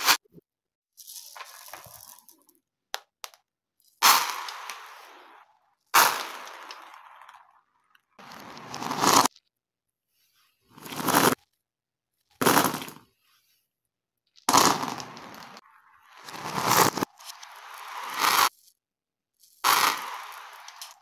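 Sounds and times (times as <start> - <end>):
reversed rattling of dice and beads: 10.8 - 11.4, 16.2 - 18.7, 19.4 - 21.0.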